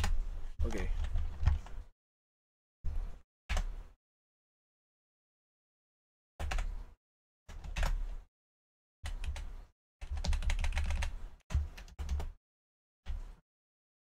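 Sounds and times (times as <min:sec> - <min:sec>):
computer keyboard typing: 0:06.4 - 0:06.8, 0:07.5 - 0:08.2, 0:09.1 - 0:12.4.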